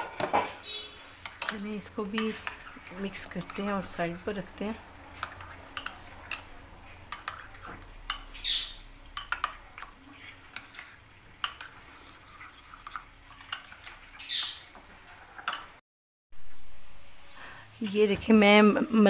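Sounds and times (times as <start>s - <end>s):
cutlery clinking against bowl: 1.2s - 2.7s, 5.2s - 8.4s, 9.1s - 14.7s, 15.4s - 15.8s.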